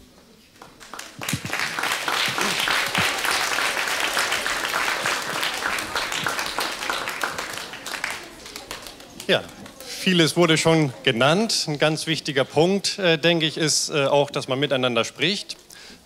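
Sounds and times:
audience applauding: 0:00.6 - 0:10.3.

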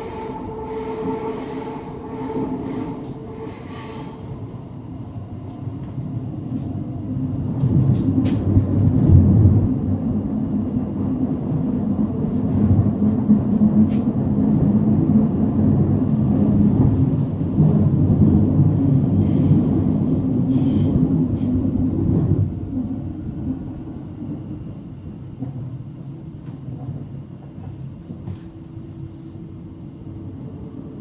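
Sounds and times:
high squeal: 0:00.0 - 0:04.4
train wheels rumbling on rail: 0:00.0 - 0:31.0.

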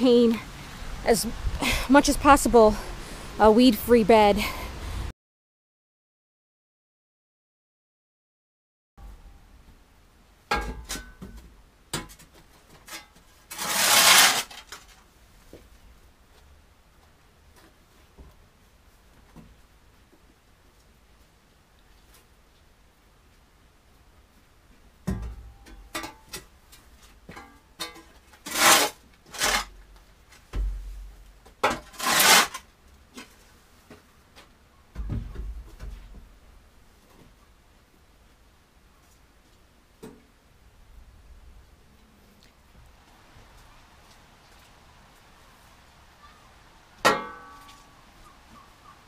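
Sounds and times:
shovel scraping floor: 0:12.9 - 0:15.0, 0:28.3 - 0:29.8, 0:31.6 - 0:32.7
metal shovel clanking: 0:47.1 - 0:47.8.

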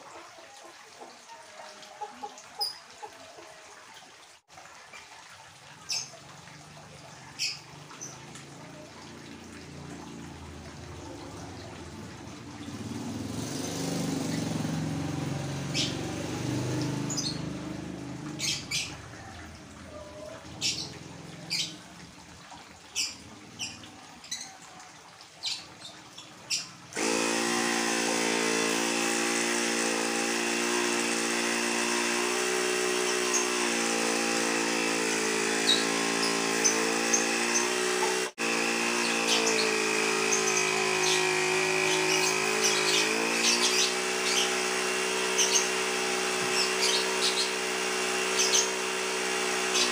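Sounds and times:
birds chirping: 0:07.0 - 0:10.2, 0:10.9 - 0:22.0, 0:22.8 - 0:24.8, 0:30.6 - 0:49.9
air compressor buzzing drone: 0:27.0 - 0:49.9.

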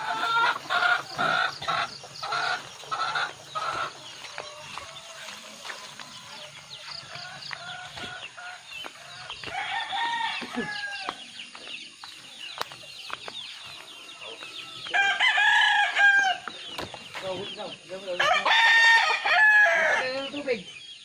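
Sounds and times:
chickens clucking: 0:00.0 - 0:21.0
rooster crowing: 0:06.1 - 0:11.2, 0:14.2 - 0:16.5, 0:18.2 - 0:20.2.

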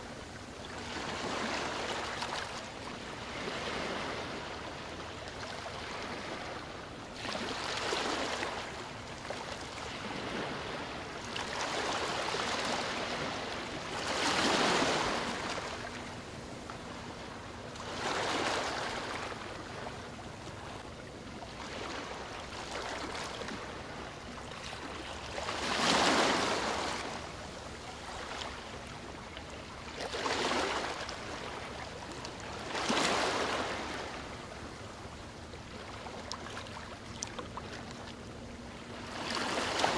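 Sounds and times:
small waves washing onto shore: 0:21.5 - 0:34.6.

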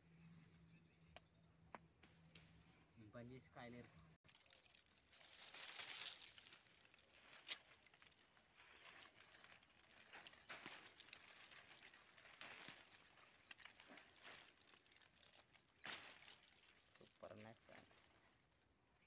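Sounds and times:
leaves and twigs rustling: 0:03.8 - 0:19.0.

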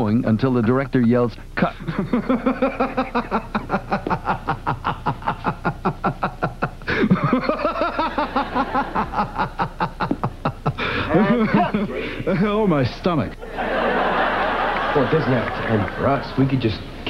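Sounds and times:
man laughing hard: 0:01.8 - 0:12.5.

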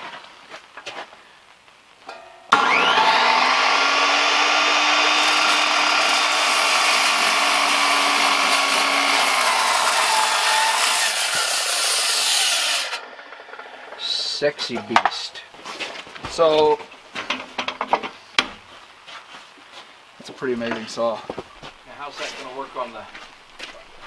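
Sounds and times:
circular saw cutting timber: 0:02.5 - 0:14.4.

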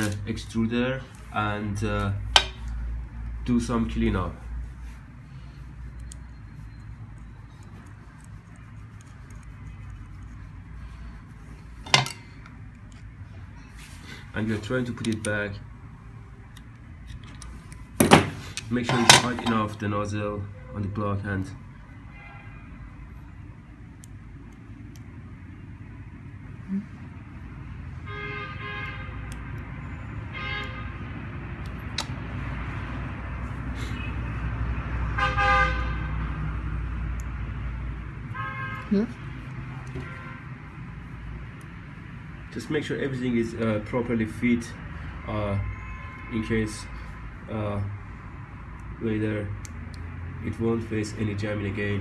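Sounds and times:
short horn honks: 0:35.2 - 0:36.0, 0:45.6 - 0:46.6.

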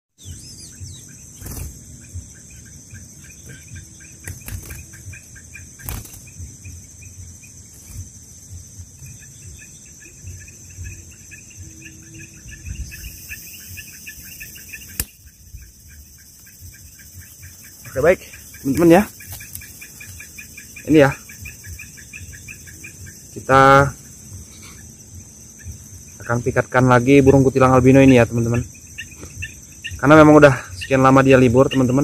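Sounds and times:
fast insect chirping: 0:00.2 - 0:32.0
high insect drone: 0:00.2 - 0:32.0
bird fluttering wings: 0:01.3 - 0:01.9, 0:04.2 - 0:06.5, 0:07.7 - 0:08.2, 0:14.9 - 0:15.3, 0:18.5 - 0:20.4.

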